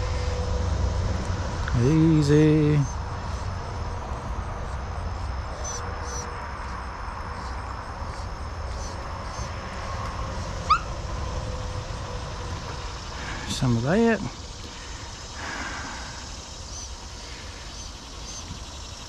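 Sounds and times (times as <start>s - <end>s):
dog squeaking: 10.7s - 10.9s.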